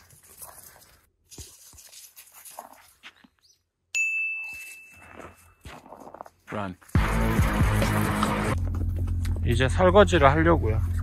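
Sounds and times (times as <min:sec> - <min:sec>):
high-pitched ding: 0:03.9 - 0:05.6.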